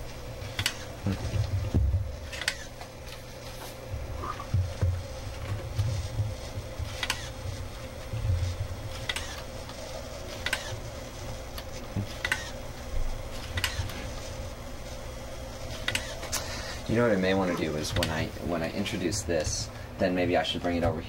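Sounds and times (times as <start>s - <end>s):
robot motors humming: 0.0s - 20.8s
sharp servo clicks: 7.0s - 7.3s, 9.0s - 9.4s, 10.4s - 10.8s, 12.2s - 12.6s, 13.5s - 13.9s, 15.8s - 16.4s.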